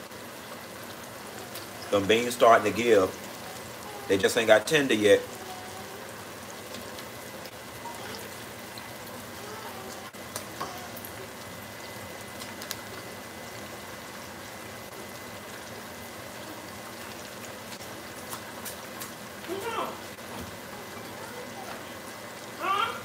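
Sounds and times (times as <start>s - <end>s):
pork chops sizzling in oil: 0.0s - 23.0s
oil crackling and popping: 0.8s - 2.4s, 6.5s - 13.8s, 14.8s - 20.6s.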